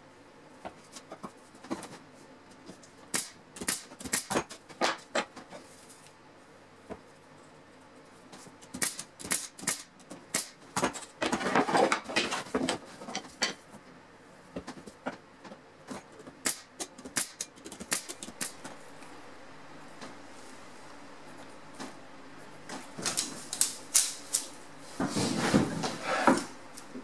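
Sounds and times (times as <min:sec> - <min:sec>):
nail gun firing: 0:03.1 - 0:04.4, 0:08.8 - 0:10.6, 0:16.4 - 0:18.6
boards sliding on workbench: 0:24.8 - 0:26.6.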